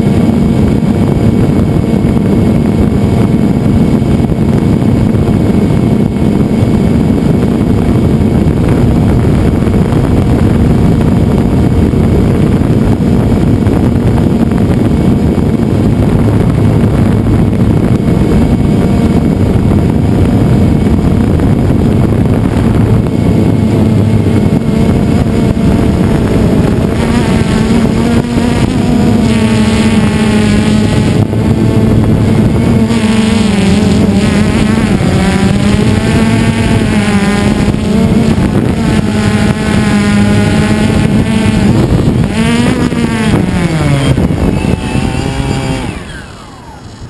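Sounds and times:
drone propellers buzzing: 0.0 - 47.0
rush of air: 0.0 - 47.0.

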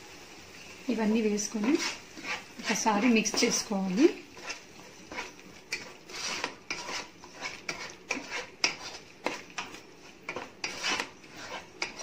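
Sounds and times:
spatula scraping a pan: 1.2 - 12.0
spatula clicking on pan: 7.7 - 11.1, 11.8 - 12.0.

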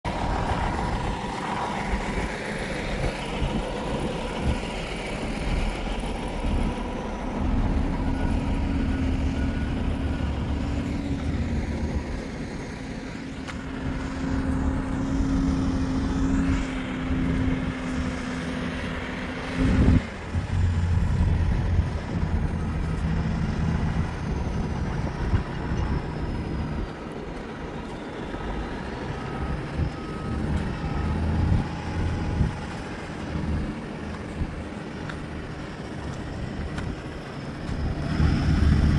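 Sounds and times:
diesel construction equipment rumbling: 0.0 - 38.9
backup alarm beeping: 19.6 - 33.8.

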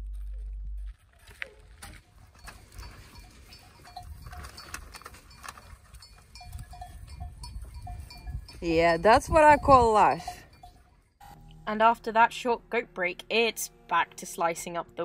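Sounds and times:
sheep bells clinking: 2.1 - 11.4.

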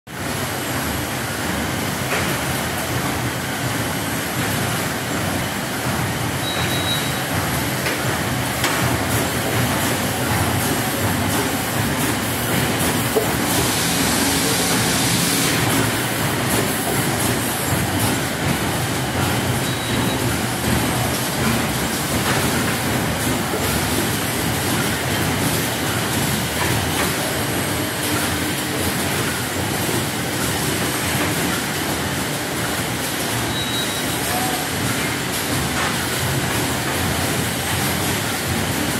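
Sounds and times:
factory machinery clatter and hum: 0.1 - 38.9
hiss: 13.4 - 15.8.

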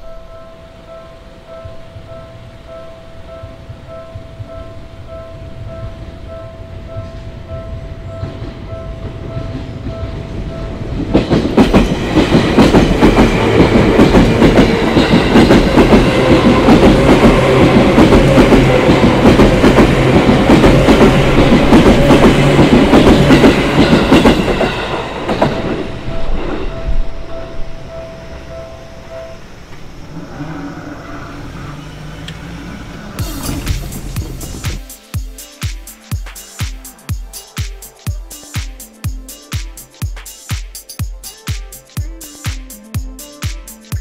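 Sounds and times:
train wheels clacking over rail joints: 11.0 - 25.8.

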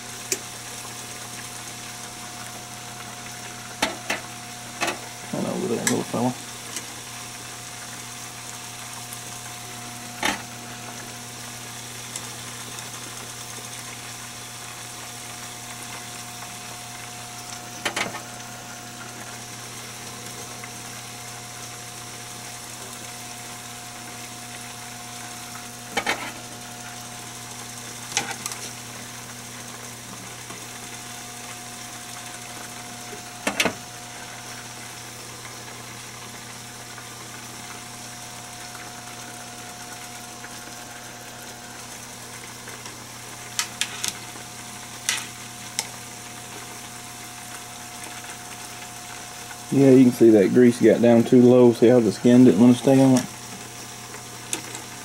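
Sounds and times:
constant hum: 0.0 - 55.0
oil sizzling: 0.0 - 55.0.

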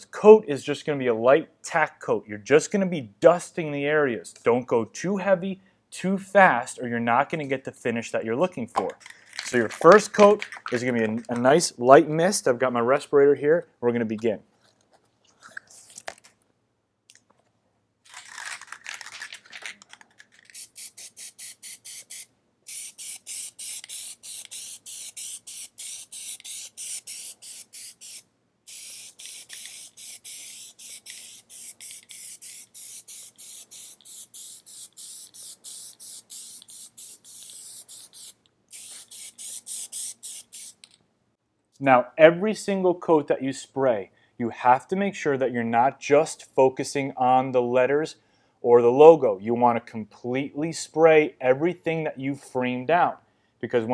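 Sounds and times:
aerosol spray hissing in pulses: 20.5 - 40.9.

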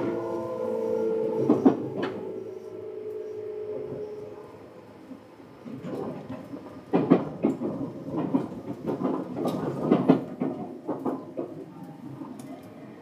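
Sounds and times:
train rumble: 0.0 - 13.0
train wheels clacking over rail joints: 1.4 - 2.2, 5.7 - 12.5.

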